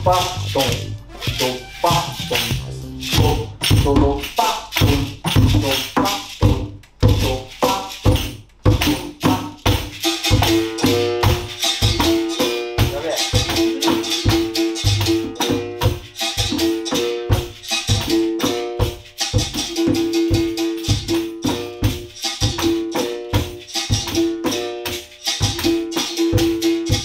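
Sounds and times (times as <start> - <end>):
basket rattle shaken: 0.0 - 15.2
conga drum slapped by hand: 0.0 - 27.0
tambourine jingles: 0.0 - 27.0.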